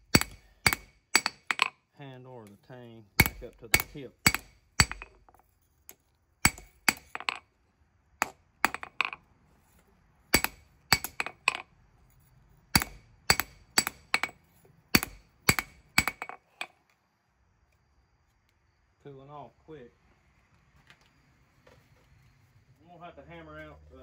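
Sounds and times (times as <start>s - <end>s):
hammer ringing on steel and anvil: 6.5s - 7.0s.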